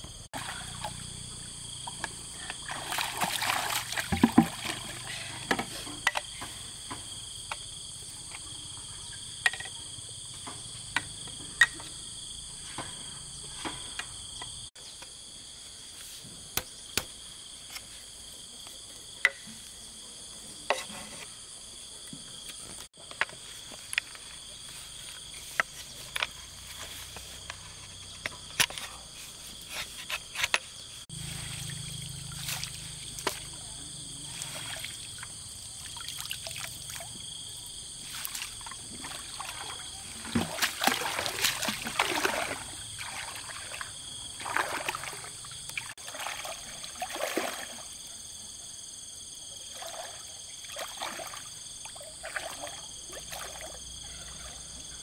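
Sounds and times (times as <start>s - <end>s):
insects droning: 0.0s - 55.0s
water sloshing and splashing: 0.3s - 7.2s, 31.1s - 48.1s, 49.6s - 54.7s.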